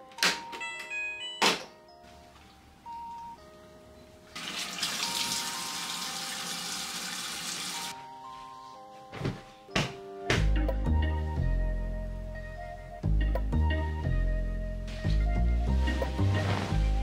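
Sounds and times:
soft background music: 0.0 - 17.0
water running from tap: 4.4 - 7.9.

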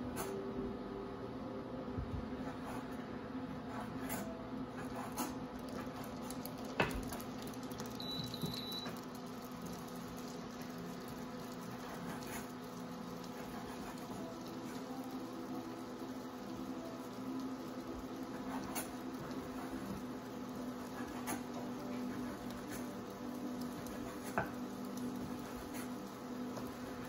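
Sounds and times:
cooktop touch control beep: 7.9 - 9.0.

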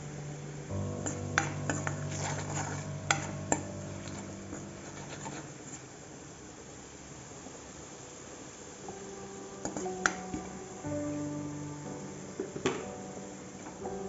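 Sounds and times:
metal ladle scraping wok: 1.0 - 5.9.

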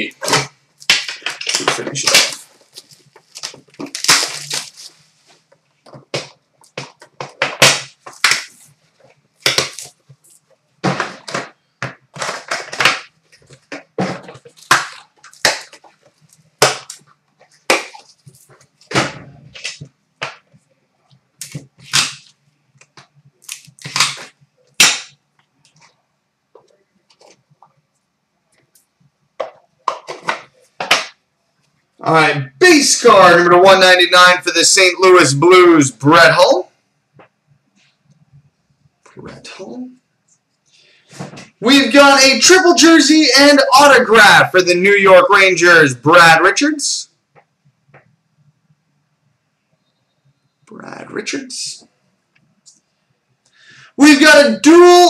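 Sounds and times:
plastic wrap crinkling: 0.8 - 18.9, 21.4 - 26.0.

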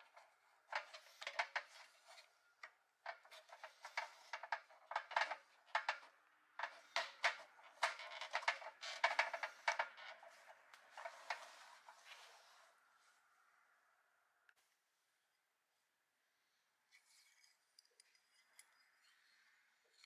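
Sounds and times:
toy wheel clicking and scraping: 0.0 - 12.6.

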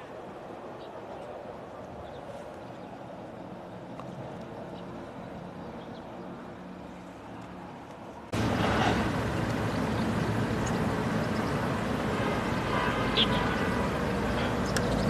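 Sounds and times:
outdoor background noise: 0.0 - 15.0
loud hiss: 8.4 - 14.6.

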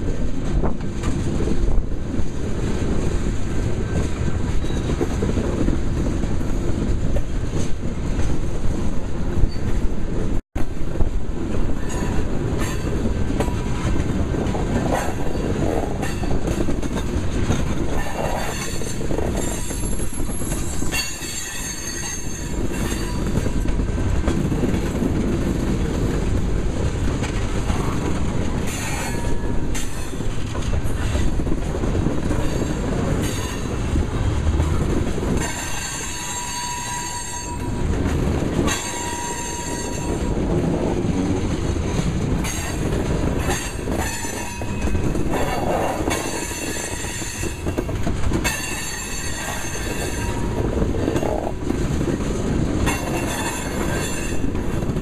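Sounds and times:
steel wheels rumbling on rail: 0.0 - 55.0
high-pitched wheel squeals: 38.7 - 40.2.

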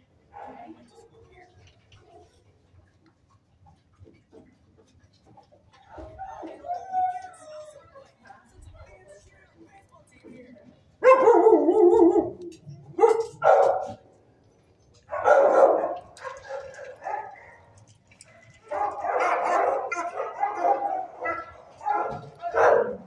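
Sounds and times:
dogs barking: 11.0 - 14.0, 15.1 - 17.8, 18.6 - 23.0.

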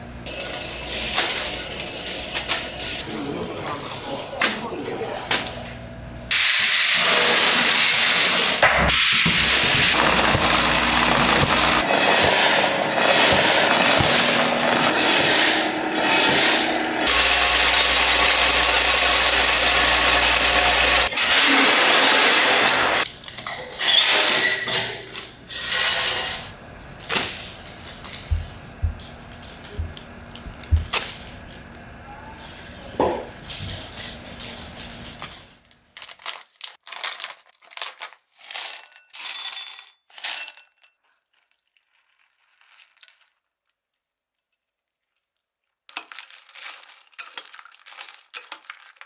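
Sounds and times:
machinery hissing loudly: 6.3 - 23.1.

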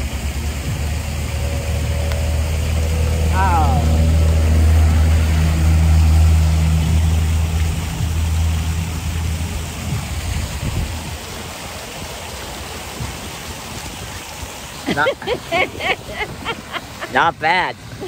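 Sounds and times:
vehicle engine humming: 0.0 - 13.1
running water: 0.0 - 18.0.

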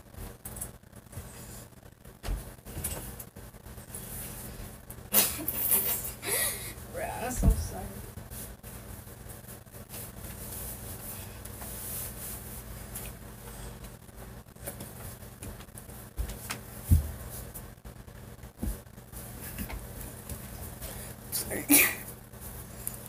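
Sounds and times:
low steady hum: 0.0 - 23.0
footsteps thumping: 16.2 - 17.3.

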